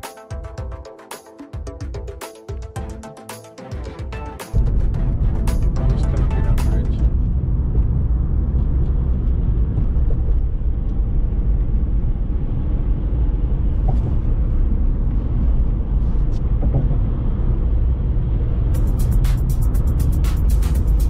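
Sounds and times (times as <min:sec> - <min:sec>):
car driving interior rumble: 0:04.6 - 0:21.0.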